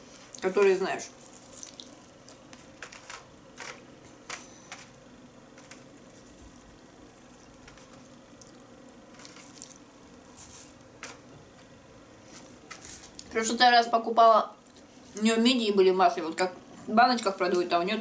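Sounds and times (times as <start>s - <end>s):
person chewing: 1.2s - 2.6s, 5.7s - 10.8s.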